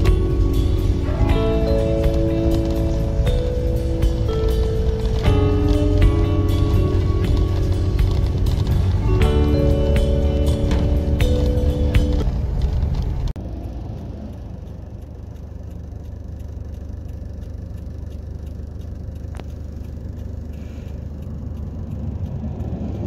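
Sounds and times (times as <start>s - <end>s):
background music: 0.0s - 12.7s
car driving rumble: 0.0s - 23.0s.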